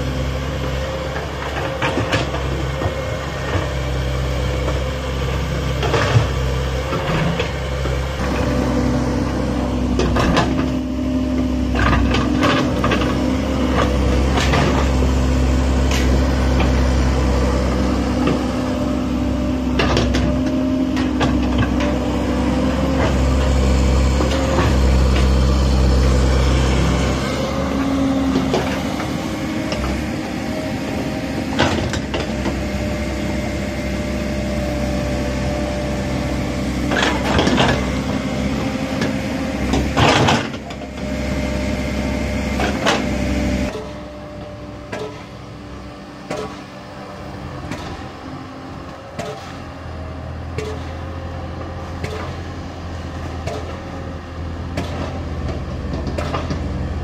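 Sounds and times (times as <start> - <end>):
excavator diesel engine: 0.0 - 57.0.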